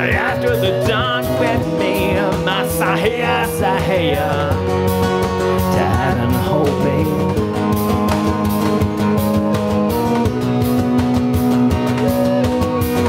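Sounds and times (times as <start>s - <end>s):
flute holding long notes: 0.0s - 7.5s
bowed electric cello: 0.0s - 13.0s
hand percussion beat: 0.0s - 13.0s
strummed acoustic guitar: 0.0s - 13.0s.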